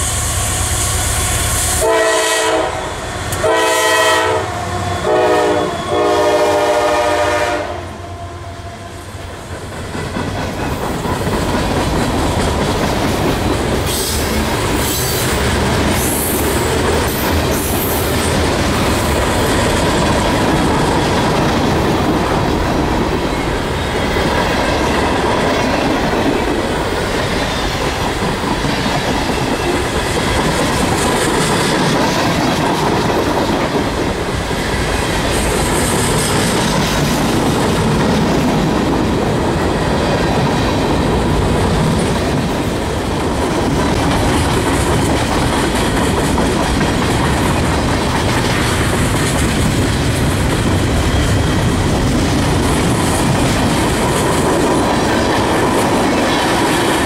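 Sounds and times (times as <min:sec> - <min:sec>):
freight train wheels rumbling: 0:00.0 - 0:57.0
locomotive air horn blasts: 0:00.2 - 0:08.9
clickety-clack over rail joints: 0:09.2 - 0:57.0.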